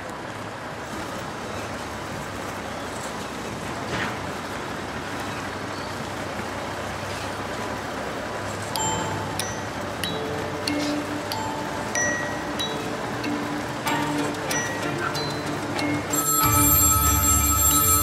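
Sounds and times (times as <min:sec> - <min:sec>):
chiming music note: 0:08.8 - 0:18.0.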